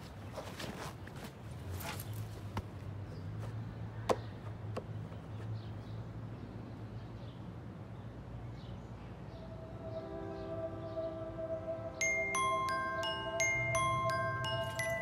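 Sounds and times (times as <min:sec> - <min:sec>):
sustained musical tones: 0:09.3 - 0:15.0.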